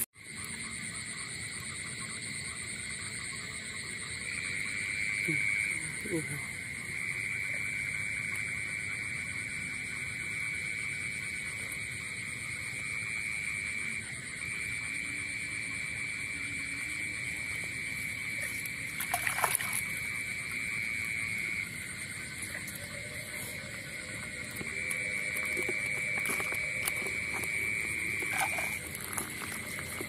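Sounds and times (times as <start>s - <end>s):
frogs calling: 0.0s - 30.0s
hands splashing in water: 18.9s - 20.0s.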